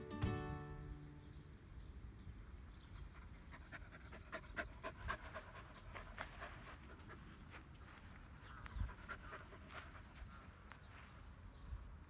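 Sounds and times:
puppy panting quickly: 3.1s - 7.7s, 8.7s - 10.3s.

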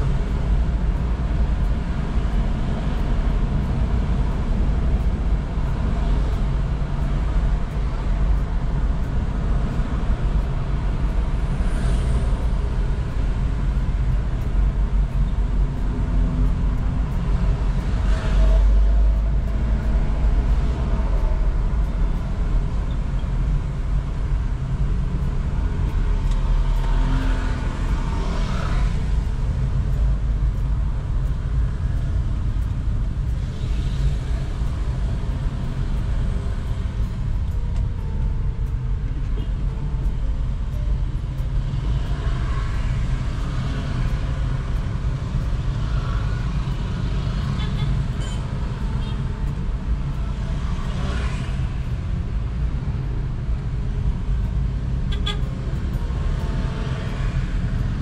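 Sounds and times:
car engine and road rumble: 0.0s - 58.0s
passing vehicle: 0.0s - 58.0s.

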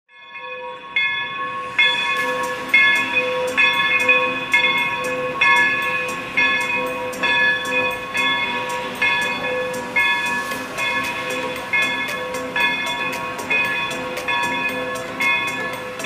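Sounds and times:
locomotive bell ringing: 0.1s - 16.0s.

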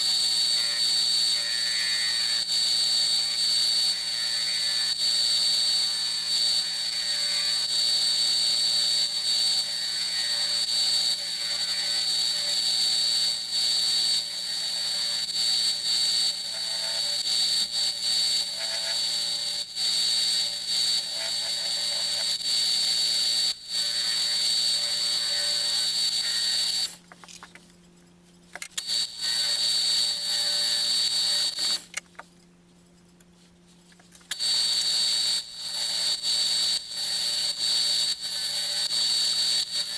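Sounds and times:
lathe whining and humming: 0.0s - 27.0s.

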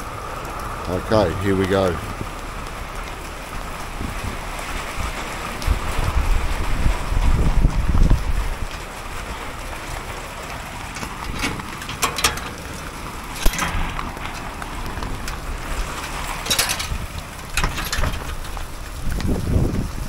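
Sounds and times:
light rain: 0.0s - 20.0s
wind: 0.0s - 20.0s
padlock and latch clicking and rattling: 11.0s - 12.6s, 16.4s - 18.6s.

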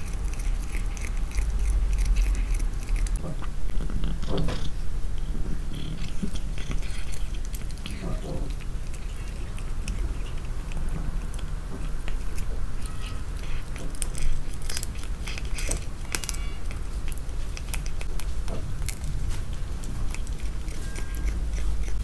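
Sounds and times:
dry cat food clicking: 0.0s - 4.8s, 5.7s - 22.0s
low steady rumble: 0.0s - 22.0s.

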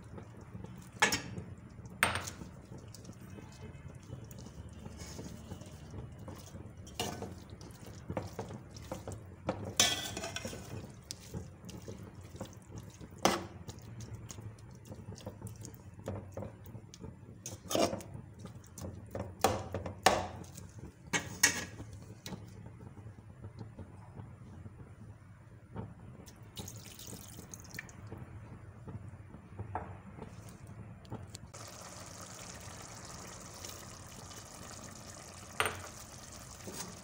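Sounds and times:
wet squelches of food: 1.6s - 6.5s, 7.3s - 9.4s, 10.8s - 16.0s.

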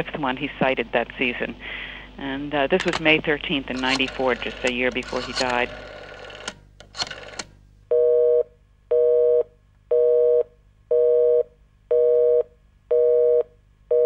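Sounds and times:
short clicks: 2.8s - 7.5s.

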